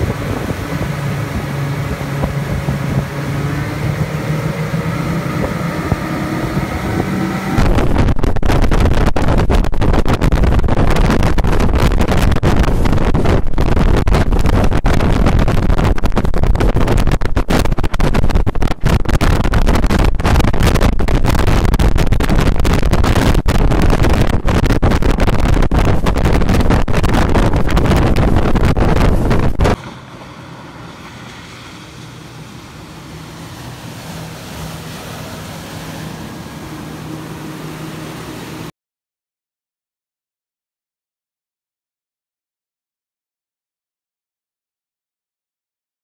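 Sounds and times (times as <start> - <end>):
outboard engines droning: 0.0 - 8.1, 29.6 - 38.7
rushing boat wake: 0.0 - 38.7
wind buffeting microphone: 0.0 - 38.7.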